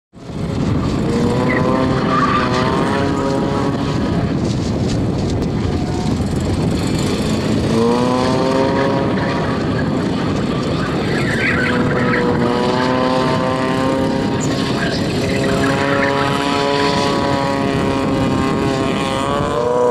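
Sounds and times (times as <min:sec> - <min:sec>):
race car engine at high revs: 0:00.1 - 0:19.9
tyres squealing: 0:08.4 - 0:13.1, 0:14.1 - 0:17.4.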